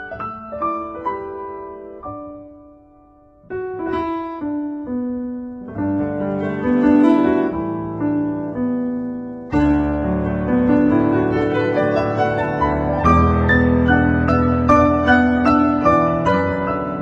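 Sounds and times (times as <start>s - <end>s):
keyboard music chords: 0.0s - 17.0s.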